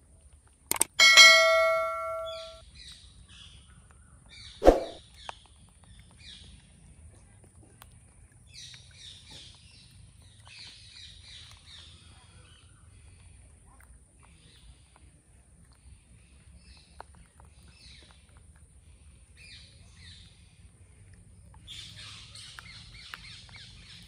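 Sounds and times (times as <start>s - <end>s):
birds chirping: 1.0s - 2.6s
sharp thump: 4.6s - 5.0s.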